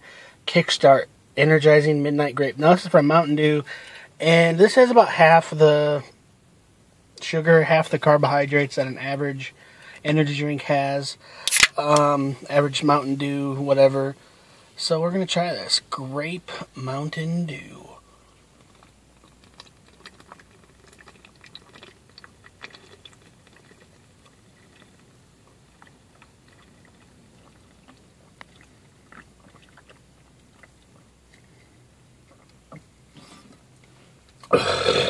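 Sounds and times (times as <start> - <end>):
person gulping a drink: 18.4 - 35.0
wet mouth clicks: 18.6 - 25.1, 25.7 - 31.6.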